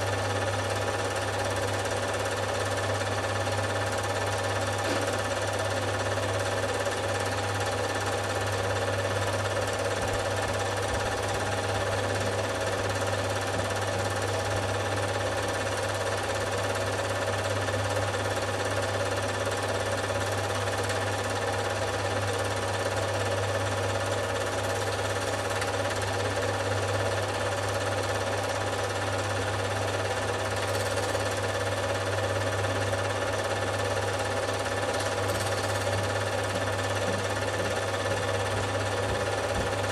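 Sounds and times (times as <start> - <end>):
film projector whirring: 0.0 - 39.9
film transport rattling: 30.4 - 31.6, 34.7 - 37.6.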